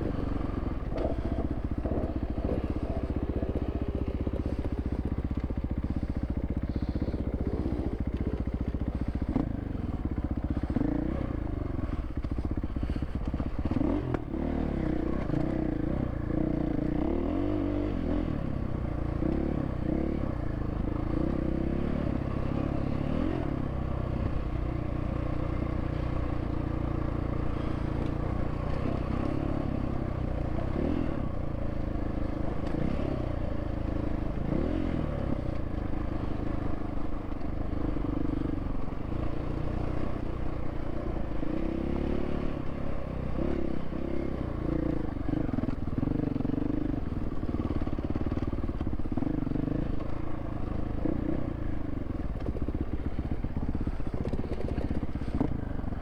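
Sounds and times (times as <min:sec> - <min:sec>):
dirt bike engine revving: 0:08.9 - 0:12.1.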